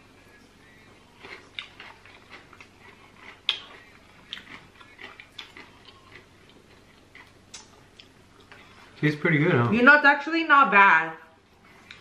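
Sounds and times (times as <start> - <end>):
chips being chewed: 0.6 - 8.7.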